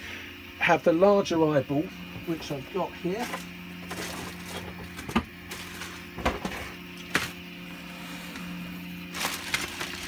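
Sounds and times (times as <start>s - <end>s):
plastic bag crinkling: 5.5s - 6.1s, 9.1s - 10.0s
objects knocking on workbench: 6.2s - 6.7s.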